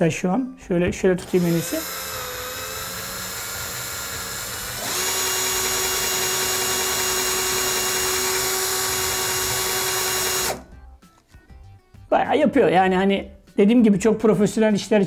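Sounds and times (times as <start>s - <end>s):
drill motor whining: 1.2s - 10.7s.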